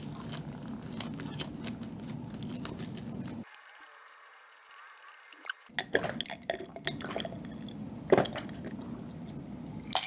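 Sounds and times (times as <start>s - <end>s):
person drinking: 5.8s - 10.0s.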